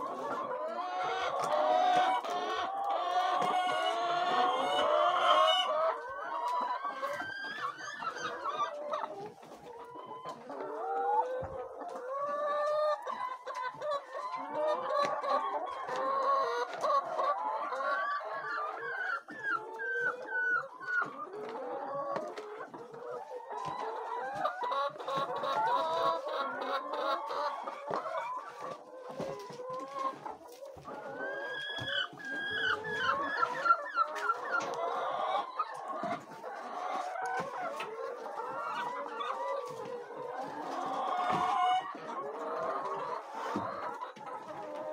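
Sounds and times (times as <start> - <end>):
hens clucking: 0.0 - 44.9.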